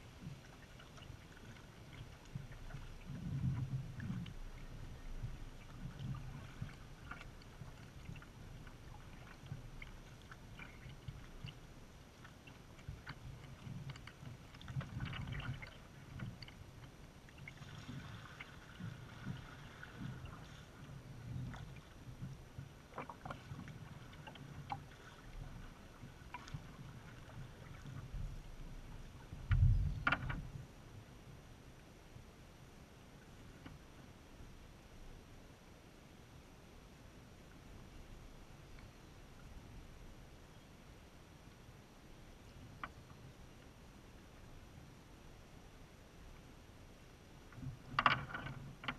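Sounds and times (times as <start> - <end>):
paddle splashing in water: 0.0 - 30.5
soft low thumps: 28.1 - 30.5.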